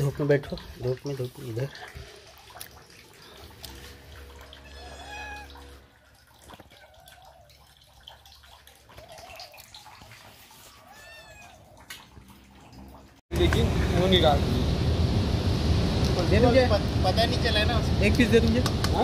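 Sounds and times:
kittens meowing: 0:04.6 - 0:05.7, 0:10.7 - 0:11.8.

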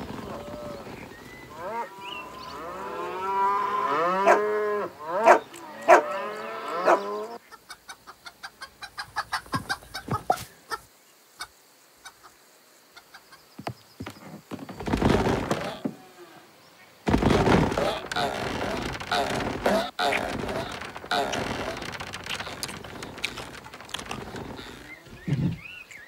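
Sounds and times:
cows mooing: 0:01.5 - 0:07.4
hens clucking: 0:06.7 - 0:12.4
sharp clicks: 0:17.1 - 0:25.2.

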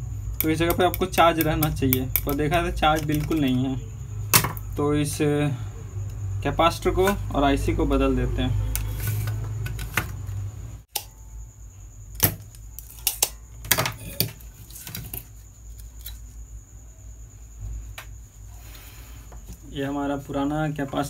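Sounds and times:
circuit board clicks and knocks: 0:00.4 - 0:03.6, 0:04.3 - 0:04.7.

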